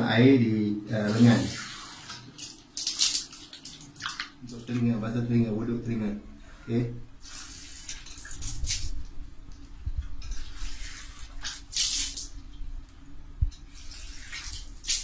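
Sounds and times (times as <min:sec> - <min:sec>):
water spurting from tap into hands: 0:01.4 - 0:04.7.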